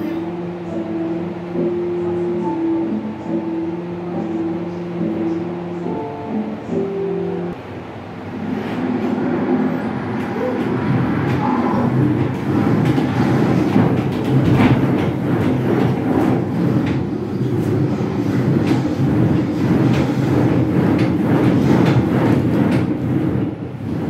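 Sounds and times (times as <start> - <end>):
knocks and rattles: 10.6 - 17.7.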